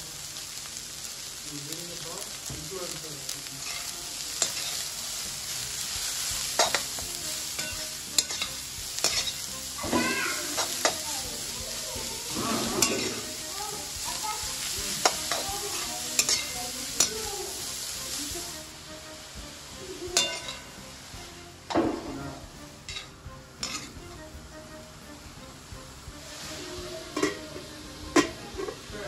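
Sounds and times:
cabbage sizzling in hot oil: 0:00.0 - 0:29.0
steel spatula scraping pan: 0:06.4 - 0:11.0, 0:12.3 - 0:13.9, 0:14.9 - 0:17.1, 0:20.2 - 0:20.8, 0:21.7 - 0:24.0.

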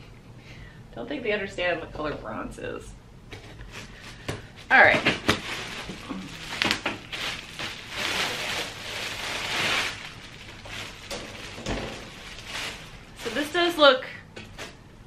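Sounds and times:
plastic wrap crinkling: 0:03.8 - 0:13.9.

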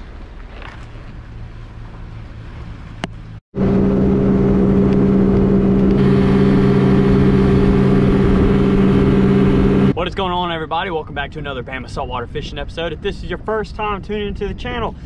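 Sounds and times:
outboard motor running: 0:02.2 - 0:09.9.

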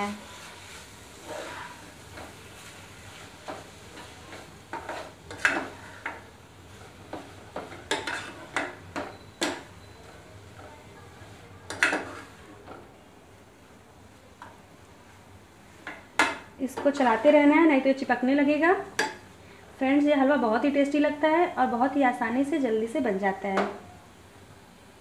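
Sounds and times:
spatula scraping a pan: 0:00.0 - 0:12.8, 0:15.8 - 0:17.6.

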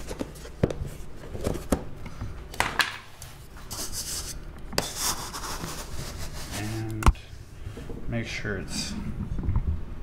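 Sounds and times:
cup scooping sugar: 0:03.7 - 0:07.0.

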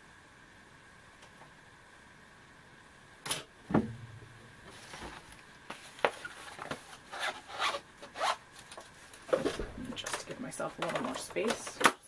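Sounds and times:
sharp knock: 0:03.7 - 0:04.2
dull thump: 0:03.7 - 0:04.4
paper rustling: 0:04.7 - 0:07.0.

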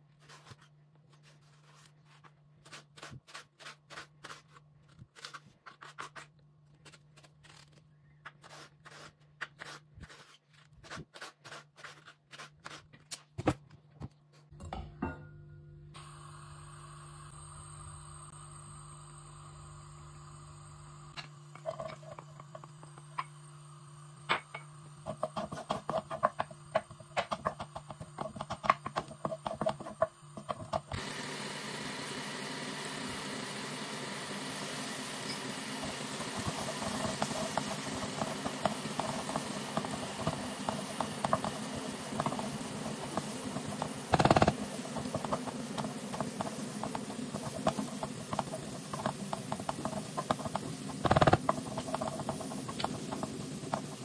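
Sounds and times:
wooden spoon scraping pot: 0:25.0 - 0:30.9, 0:36.3 - 0:54.0.

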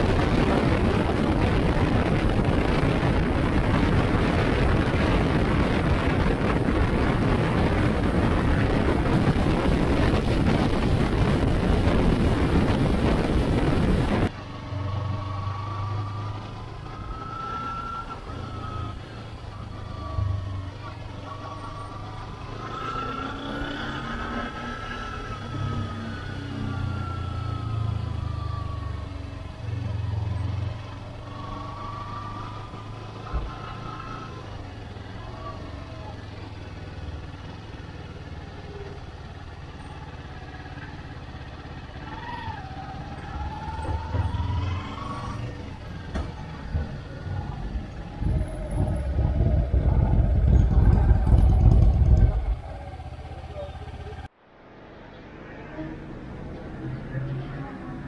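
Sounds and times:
motorcycle engine running: 0:44.0 - 0:54.3.

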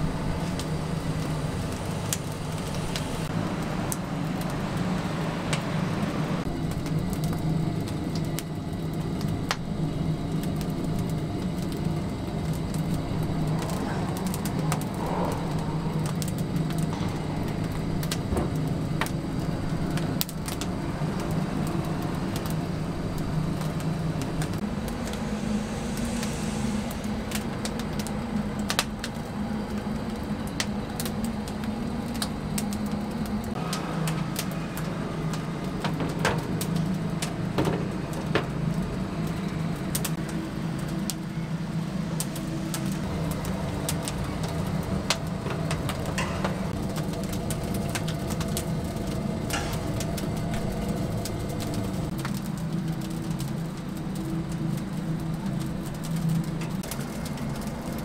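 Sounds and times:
firewood crackling: 0:00.0 - 0:58.0
steady low hum: 0:00.0 - 0:58.0.

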